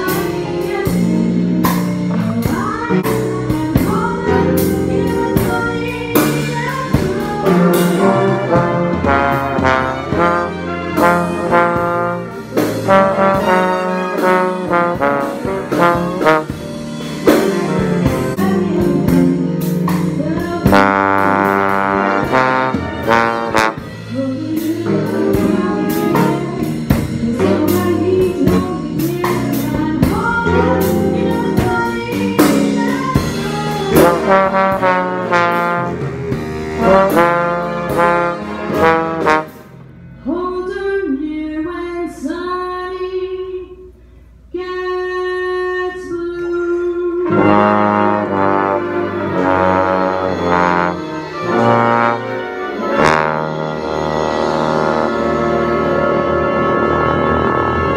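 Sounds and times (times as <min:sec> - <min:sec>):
drum and cymbal hits: 0:00.0 - 0:39.9
bass trombone: 0:00.0 - 0:40.8, 0:45.7 - 0:57.9
big band playing jazz: 0:00.0 - 0:42.3, 0:45.9 - 0:57.9
loud held brass chord: 0:07.5 - 0:19.2, 0:20.6 - 0:24.2, 0:33.8 - 0:40.4, 0:47.2 - 0:57.9.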